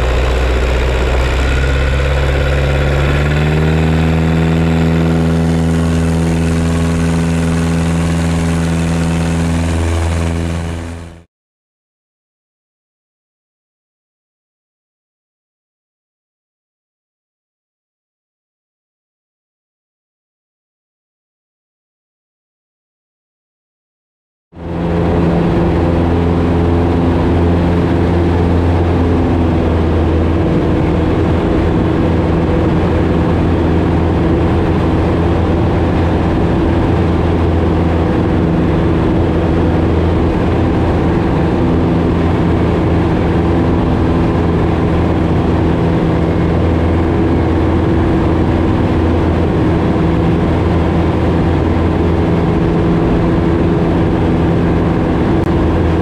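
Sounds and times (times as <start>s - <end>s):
airplane engine drone: 0.0s - 11.3s, 24.6s - 56.0s.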